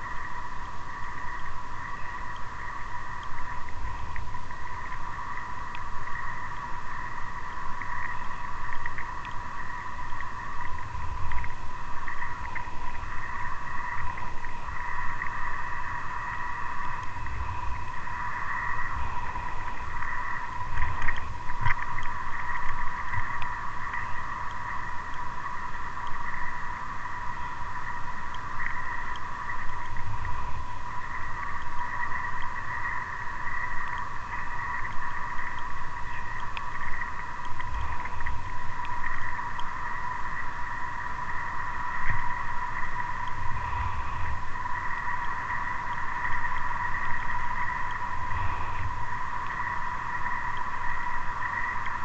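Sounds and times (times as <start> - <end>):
steady high-pitched whine: 0.0 - 52.0.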